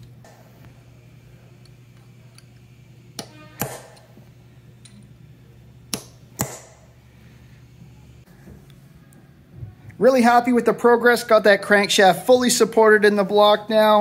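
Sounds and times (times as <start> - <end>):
hammer striking metal punch: 3.2 - 4.1, 5.9 - 6.9.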